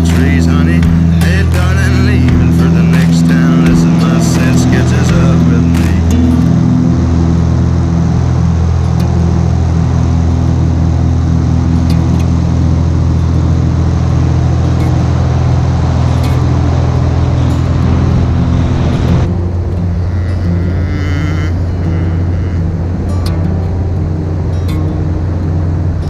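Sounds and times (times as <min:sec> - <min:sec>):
propeller aircraft engine drone: 0:00.0 - 0:26.0
rush of air: 0:14.0 - 0:20.1.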